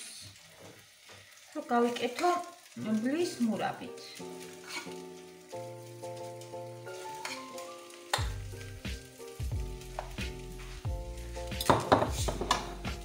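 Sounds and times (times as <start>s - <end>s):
kick drum and bass beat: 9.4s - 13.0s.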